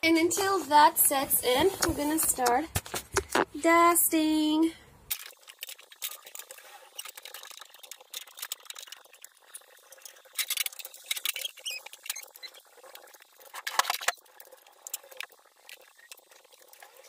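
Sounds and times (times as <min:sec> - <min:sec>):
cloth rubbing and squeaking on glass: 0:10.9 - 0:12.8
objects clicking and knocking: 0:13.5 - 0:14.2.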